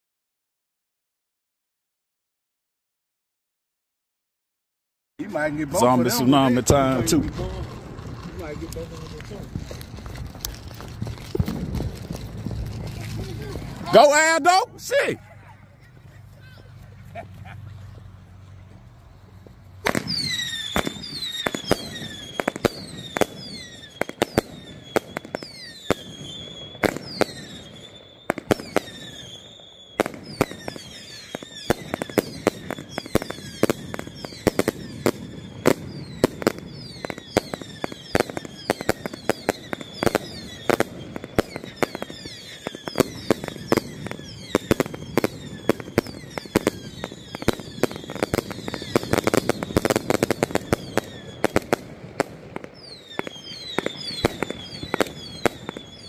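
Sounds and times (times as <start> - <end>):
fireworks shots and crackling: 5.2 - 15.2, 19.8 - 56.0
firework whistles falling in pitch: 19.8 - 51.8, 52.7 - 56.0.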